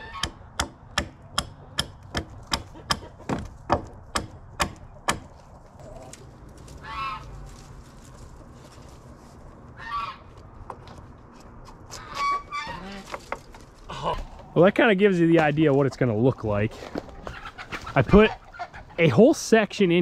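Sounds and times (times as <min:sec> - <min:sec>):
poultry calling: 0:05.8 - 0:07.8, 0:09.6 - 0:10.4, 0:11.9 - 0:13.1, 0:16.7 - 0:19.2.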